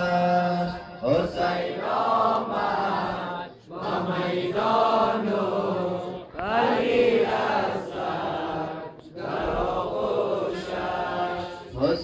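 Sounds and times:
man chanting a lament: 0.0s - 2.0s, 11.2s - 12.0s.

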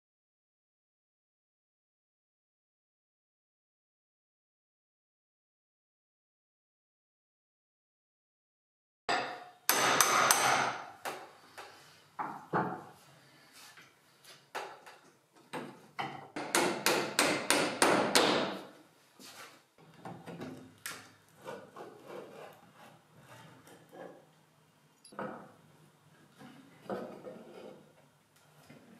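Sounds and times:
hammer striking nails: 9.1s - 11.2s, 16.4s - 18.7s.

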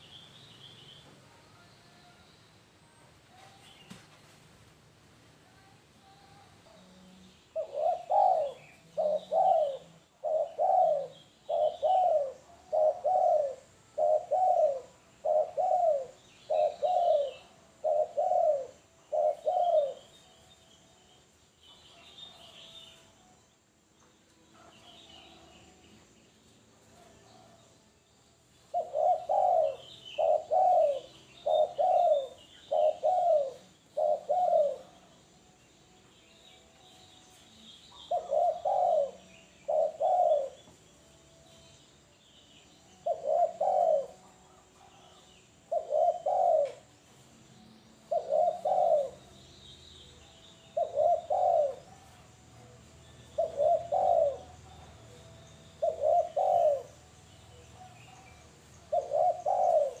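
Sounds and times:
small birds chirping: 5.5s - 60.0s
dove cooing: 7.5s - 20.2s, 28.7s - 35.1s, 37.9s - 40.8s, 43.0s - 47.0s, 48.0s - 49.3s, 50.7s - 52.3s, 53.3s - 60.0s.

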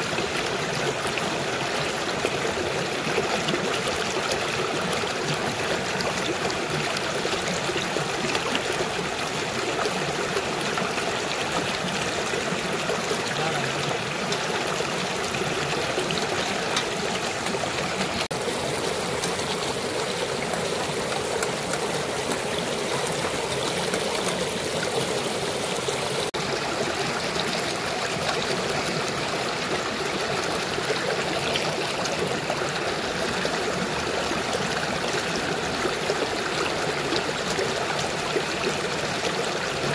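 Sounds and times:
river water splashing over rocks: 0.0s - 39.9s.

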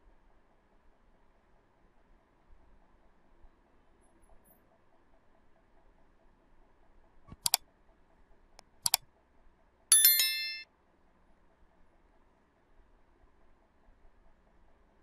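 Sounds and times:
mouse clicks: 7.3s - 7.6s
bright bell ding: 9.9s - 10.6s.

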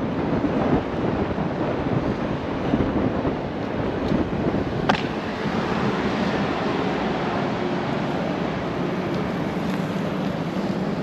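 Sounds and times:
tyre rumbling on rough asphalt: 0.0s - 7.3s
wind buffeting microphone: 0.0s - 11.0s.

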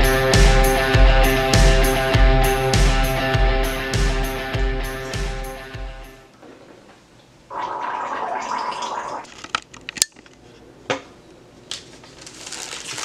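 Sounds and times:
person gargling: 7.5s - 9.2s.

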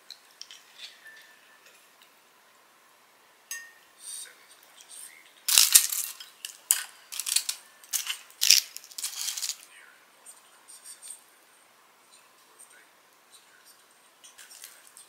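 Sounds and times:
crispy fried food crackling: 5.4s - 9.6s.

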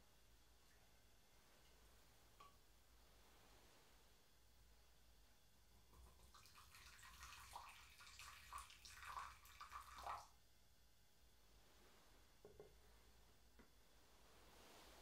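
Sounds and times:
water trickling into a bowl: 6.0s - 10.3s.

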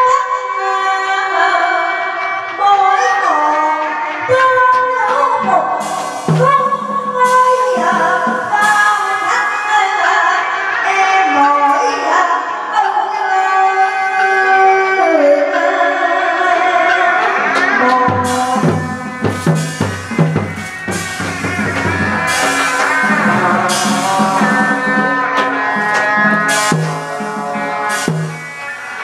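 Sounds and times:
drum strokes: 4.8s - 9.4s, 17.4s - 29.0s
wavering theatre melody: 5.3s - 9.4s, 17.5s - 29.0s.

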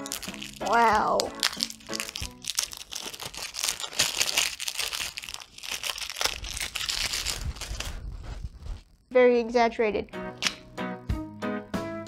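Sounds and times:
cellophane wrapper crinkling: 0.0s - 9.1s.

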